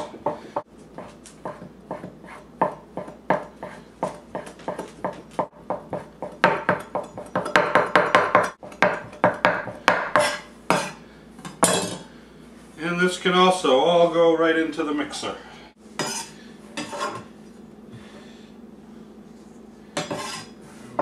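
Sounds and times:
knife chopping bread: 0.0 - 11.0.

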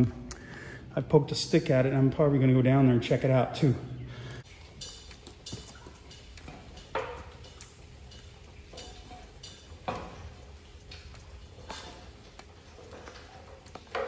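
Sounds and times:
climbing on metal ladder rungs: 4.4 - 14.0.

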